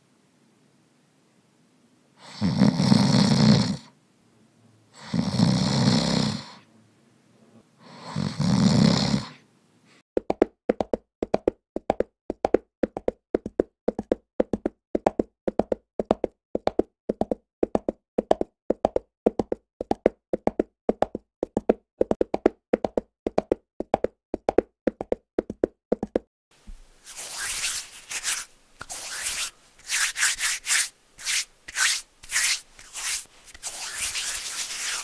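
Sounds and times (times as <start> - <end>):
person snoring: 5.0 - 6.6, 7.8 - 9.4.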